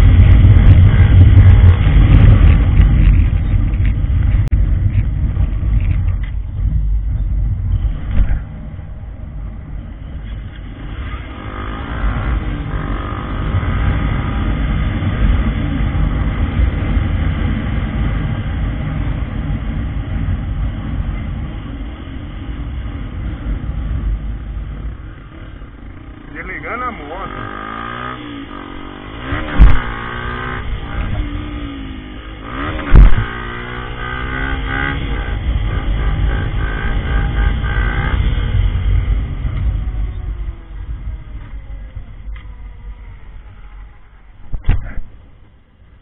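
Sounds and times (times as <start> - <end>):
motorcycle engine running: 0.0 - 46.0.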